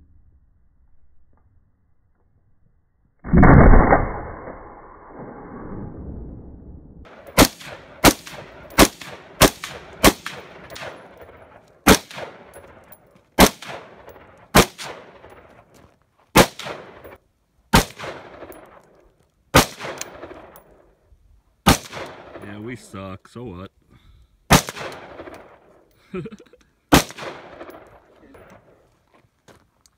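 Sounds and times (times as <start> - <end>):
rifle shots with echo: 7.1 - 15.7, 16.4 - 18.9, 19.5 - 20.8, 21.6 - 22.8, 24.5 - 25.7, 26.9 - 28.8.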